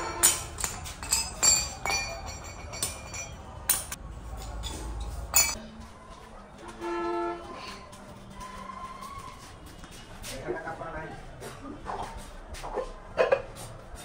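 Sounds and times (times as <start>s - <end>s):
clay pots clinking: 0.0s - 5.6s.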